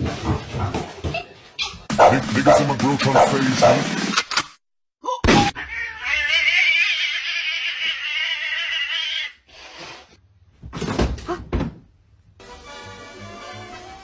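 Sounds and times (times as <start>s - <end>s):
cat growling yowl: 5.6s - 9.4s.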